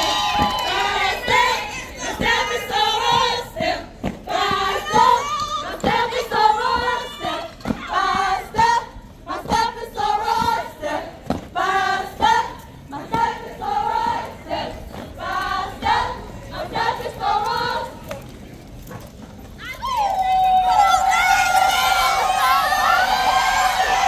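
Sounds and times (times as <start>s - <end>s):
women chanting in unison: 0.0s - 17.9s.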